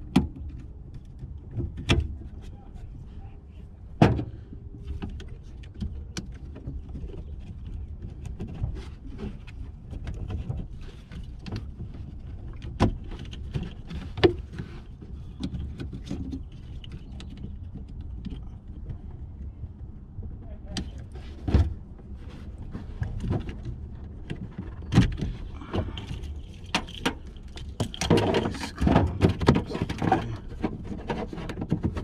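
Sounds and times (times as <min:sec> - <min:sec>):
low steady rumble: 0:00.0 - 0:32.0.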